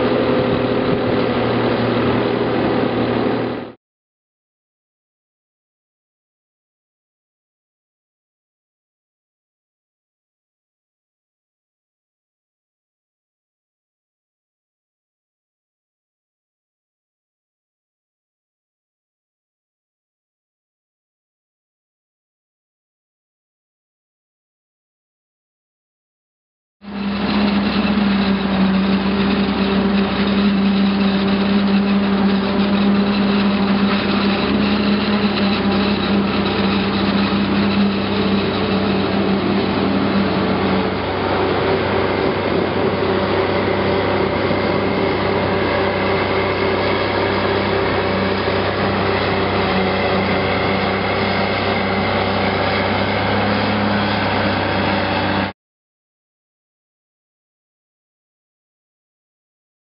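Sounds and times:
heavy diesel machinery droning: 0:00.0 - 0:03.8, 0:26.8 - 0:55.5.

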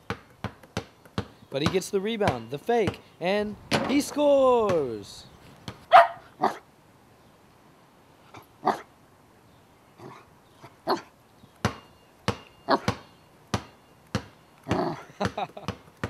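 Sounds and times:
small dog barking: 0:05.9 - 0:06.6.

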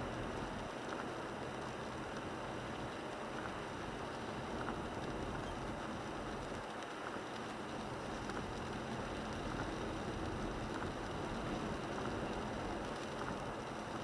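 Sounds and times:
rain on car body: 0:00.0 - 0:14.0
tyres hissing on wet road: 0:00.0 - 0:14.0.

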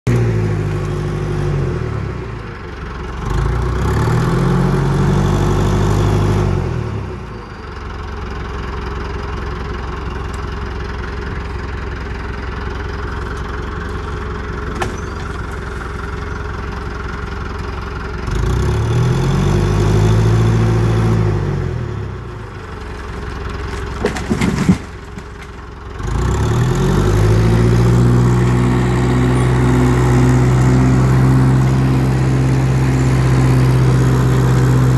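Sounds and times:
loader engine revving: 0:00.1 - 0:34.9.

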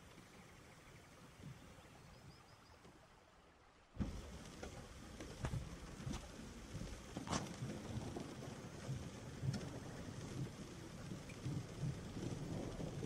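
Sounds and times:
rain hiss: 0:00.0 - 0:13.0
raindrops striking close by: 0:03.9 - 0:13.0.

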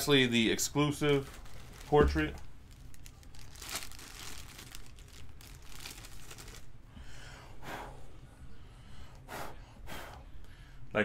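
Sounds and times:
plastic bag crinkling: 0:00.7 - 0:06.8.

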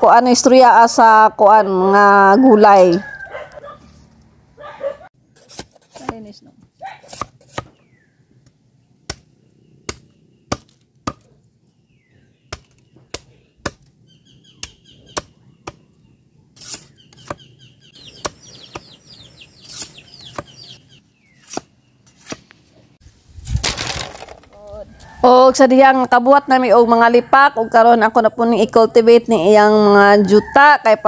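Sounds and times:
machete chopping bamboo: 0:07.0 - 0:07.8, 0:09.1 - 0:11.3, 0:12.5 - 0:13.9, 0:14.6 - 0:15.8, 0:21.4 - 0:22.5.

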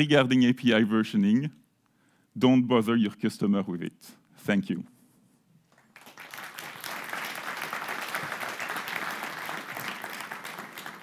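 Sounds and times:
large crowd clapping: 0:05.7 - 0:11.0.

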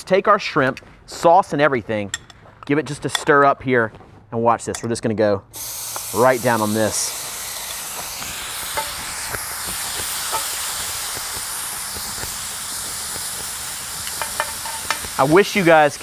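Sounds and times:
shrimp sizzling on a hot plate: 0:05.6 - 0:16.0
metal tongs scraping a pan: 0:14.1 - 0:15.2.

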